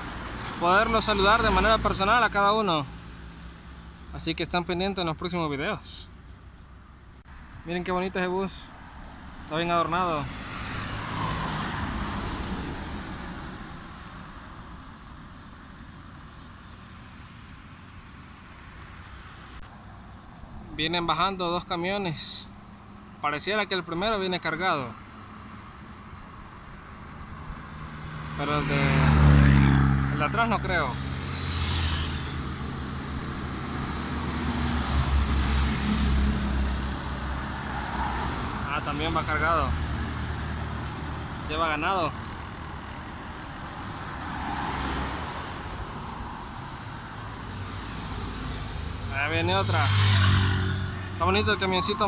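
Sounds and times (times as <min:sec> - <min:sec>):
low hum of road noise: 0:00.0 - 0:52.0
bus passing by: 0:08.8 - 0:20.6, 0:25.2 - 0:52.0.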